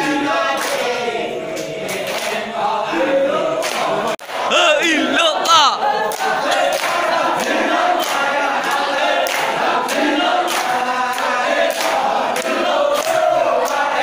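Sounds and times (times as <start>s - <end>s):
men chanting together: 0.0s - 14.0s
hand claps: 0.5s - 1.0s, 1.6s - 2.4s, 3.6s - 4.5s, 6.1s - 14.0s.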